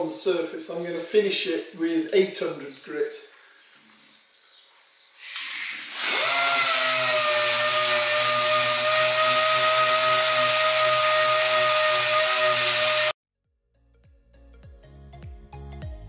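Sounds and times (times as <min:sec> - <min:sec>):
air sander whining and hissing: 0:05.2 - 0:13.2.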